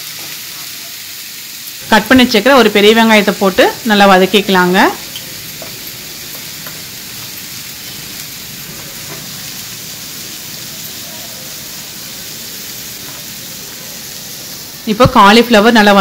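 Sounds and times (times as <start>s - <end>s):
onions sizzling in a frying pan: 0.0s - 16.0s
wooden spatula stirring: 5.0s - 10.8s.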